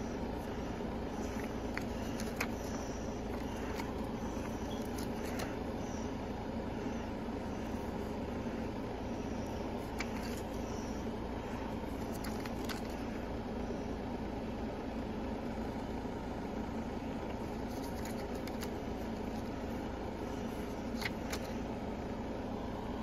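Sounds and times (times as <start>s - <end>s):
low machine hum: 0.0s - 23.0s
paper pages turning: 0.4s - 6.0s, 9.4s - 10.9s, 11.6s - 13.1s, 17.5s - 19.6s, 20.3s - 21.6s.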